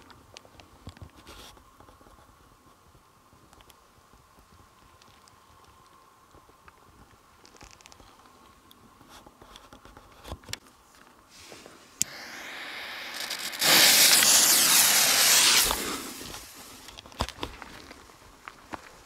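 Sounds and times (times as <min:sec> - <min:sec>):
fuse hissing: 0:11.3 - 0:16.9.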